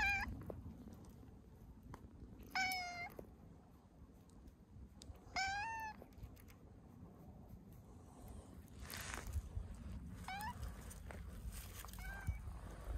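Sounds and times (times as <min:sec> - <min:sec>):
cat meowing: 0:00.0 - 0:00.4, 0:02.4 - 0:03.2, 0:05.2 - 0:06.0, 0:10.2 - 0:10.8, 0:11.8 - 0:12.5.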